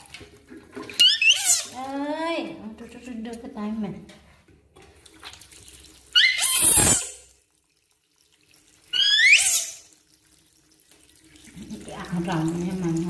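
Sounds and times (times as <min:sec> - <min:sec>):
baby monkey squealing: 0:01.0 - 0:01.8, 0:06.1 - 0:07.2, 0:08.9 - 0:09.8.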